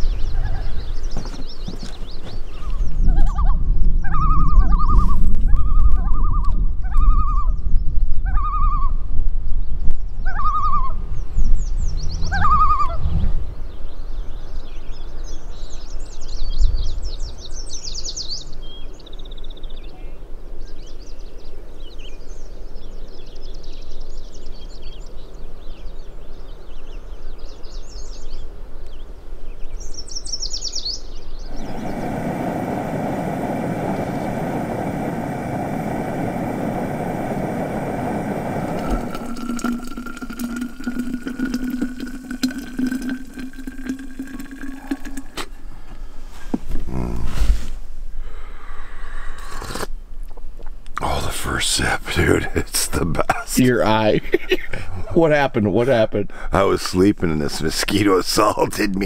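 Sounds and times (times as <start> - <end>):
high chirping birdsong: 0.0 - 9.0, 9.6 - 46.3
whistled bird call: 2.6 - 9.0, 10.2 - 11.0, 11.6 - 13.1
steady droning hum: 31.5 - 46.0.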